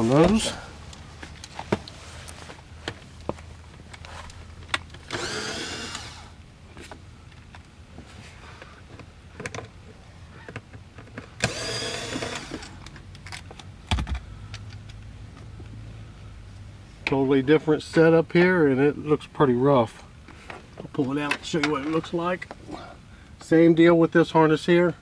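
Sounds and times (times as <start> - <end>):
cordless screwdriver running: 5.0 - 6.4, 11.4 - 12.7.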